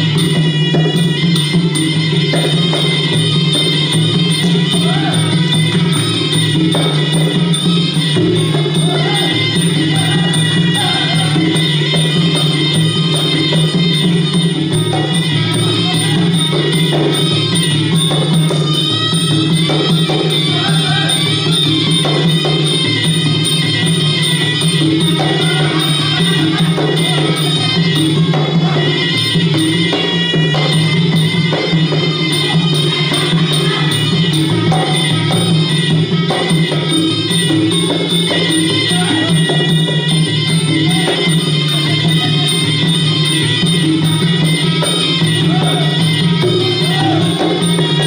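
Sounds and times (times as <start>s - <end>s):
reedy wind instrument melody: 0.0s - 48.0s
small hand cymbals: 0.0s - 48.0s.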